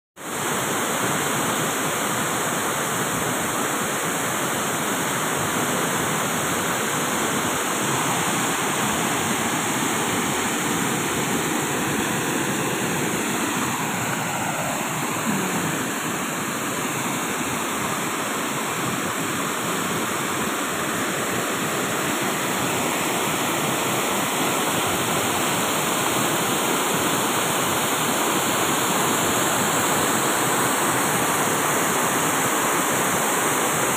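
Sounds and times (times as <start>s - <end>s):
water rushing over weir: 0.2s - 33.9s.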